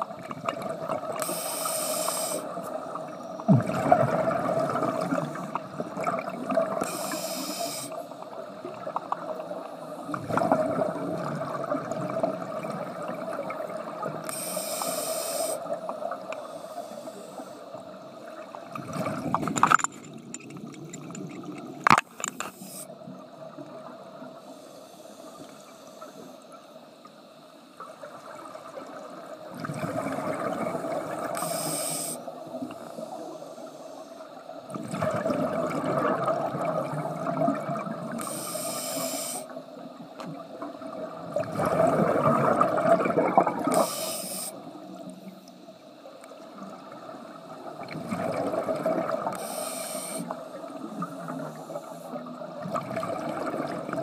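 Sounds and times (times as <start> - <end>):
regulator inhalation hiss: 1.2 - 2.7, 6.8 - 8.2, 14.2 - 18.0, 22.3 - 23.1, 24.4 - 26.6, 31.2 - 34.6, 38.1 - 40.0, 43.6 - 45.7, 49.3 - 52.3
exhaled air bubbling: 2.4 - 6.9, 8.2 - 14.9, 17.8 - 22.0, 28.0 - 31.4, 34.7 - 38.4, 40.7 - 44.8, 46.6 - 49.4, 50.3 - 54.0.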